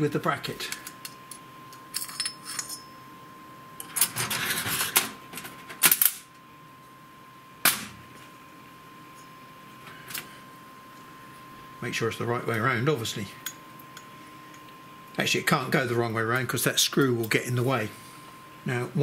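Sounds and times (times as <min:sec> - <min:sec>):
metal tools and parts clattering: 0:01.9 - 0:02.9.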